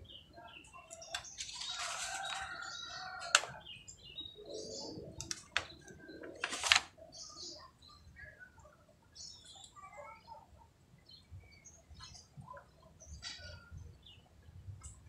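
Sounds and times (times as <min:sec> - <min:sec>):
birds chirping: 0:00.0 - 0:15.0
sharp clicks: 0:05.2 - 0:06.9.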